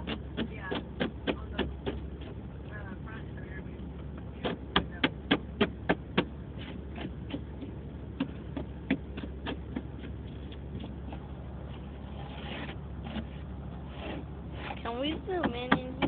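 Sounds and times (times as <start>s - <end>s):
sharp taps: 0.0s - 2.8s, 3.8s - 11.2s
low hum inside a car: 0.0s - 16.0s.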